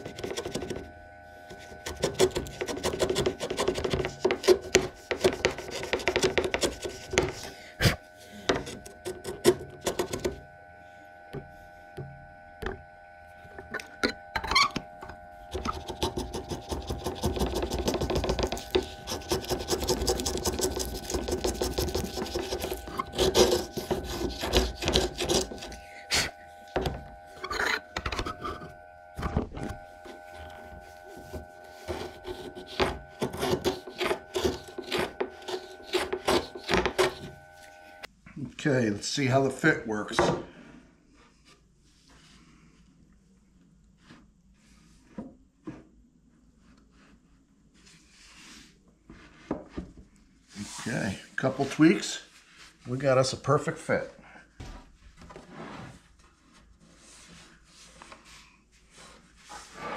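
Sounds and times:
hand plane scraping wood: 0.0 - 10.4, 15.5 - 38.1, 55.3 - 56.0, 56.8 - 59.9.

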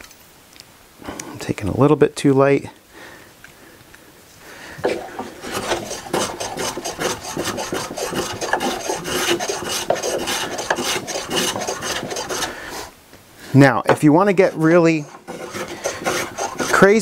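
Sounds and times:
block plane scraping wood: 4.8 - 12.9, 13.9 - 17.0.

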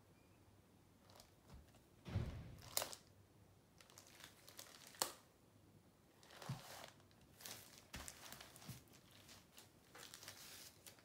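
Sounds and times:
plastic sheeting rustling: 6.2 - 11.0.

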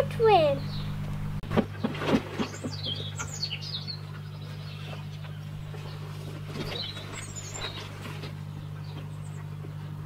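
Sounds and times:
small birds chirping: 0.0 - 1.1, 1.7 - 10.0
steady low hum: 0.0 - 10.0.

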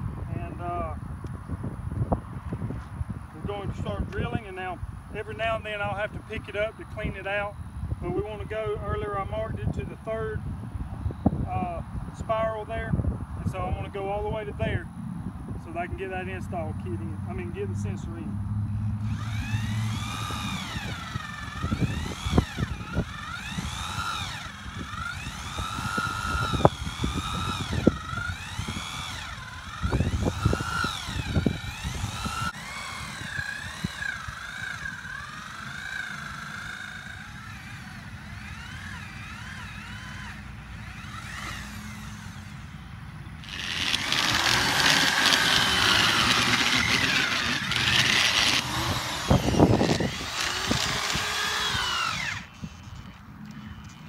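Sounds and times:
power drill motor whine: 18.8 - 54.0.

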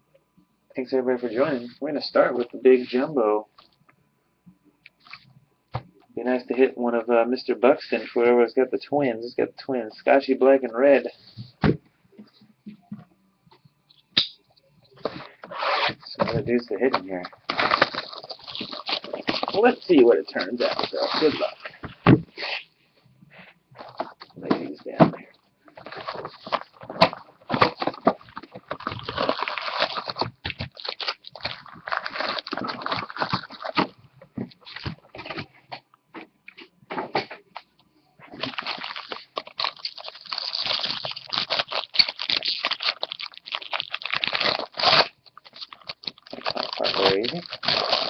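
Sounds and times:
foil wrappers crinkling and tearing: 17.2 - 21.8, 25.8 - 33.9, 38.4 - 48.0.

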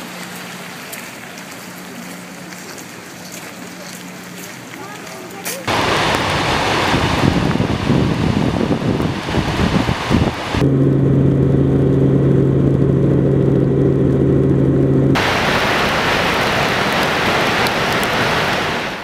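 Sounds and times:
floodwater rushing: 0.0 - 10.6, 15.2 - 19.0
helicopter cabin drone: 10.4 - 15.3.

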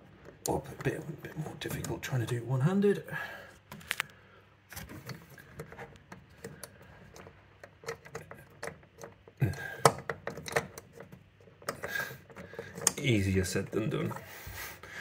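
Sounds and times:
plastic clicks of connector: 3.7 - 5.2.

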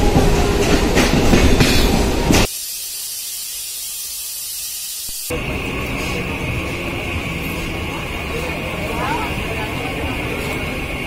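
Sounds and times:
train rumble: 0.0 - 2.5, 5.3 - 11.0.

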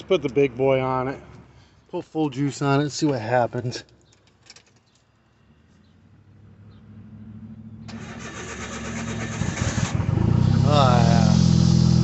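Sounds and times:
car engine cranking and starting: 7.8 - 12.0.

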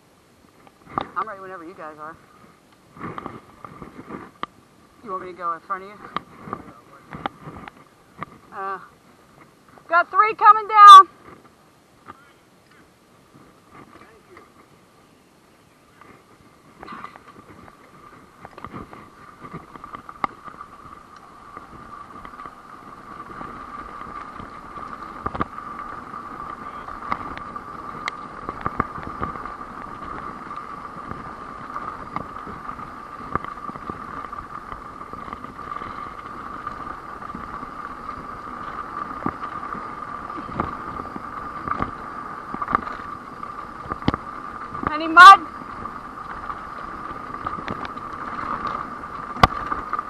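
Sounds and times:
bike knocking and rattling: 15.9 - 50.0
tyres rumbling on dirt: 15.9 - 50.0.

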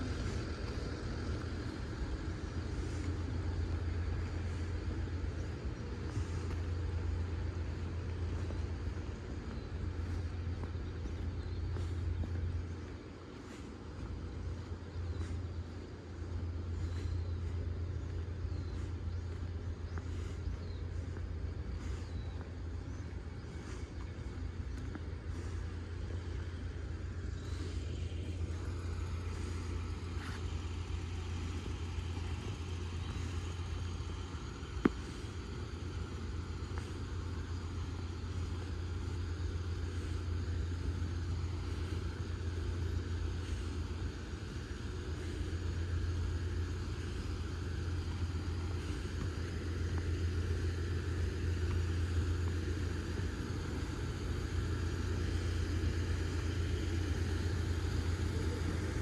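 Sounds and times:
diesel railcar engine idling: 0.0 - 59.0.

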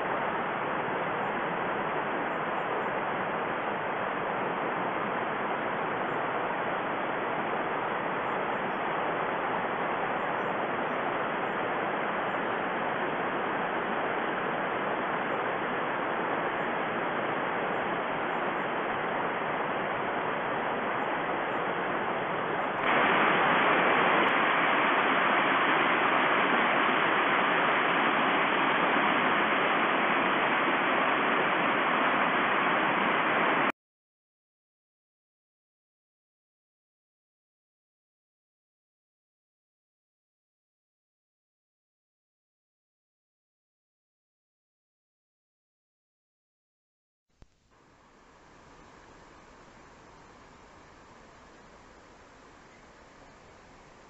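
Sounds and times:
stream water rushing: 0.0 - 33.7, 47.8 - 54.0.

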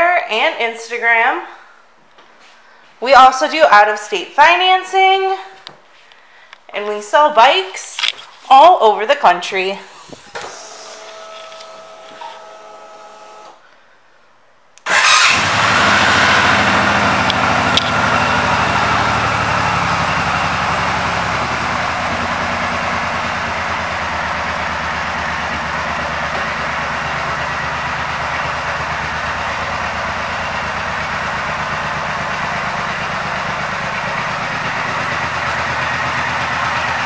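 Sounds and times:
motorcycle engine starting and idling: 14.8 - 37.0.

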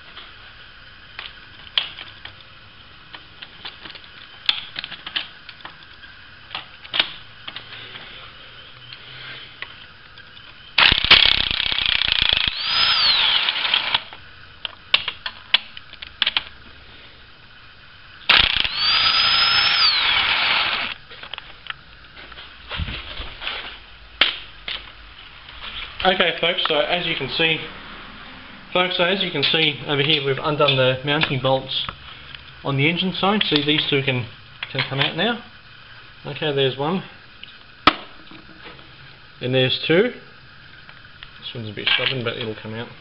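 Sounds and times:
impact wrench whining: 10.8 - 14.2, 18.2 - 21.0.

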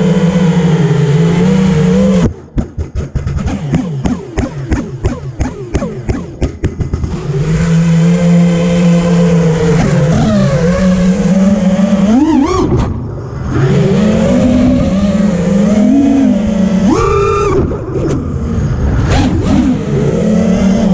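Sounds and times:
quadcopter motors whining: 0.0 - 2.5, 3.3 - 20.9.

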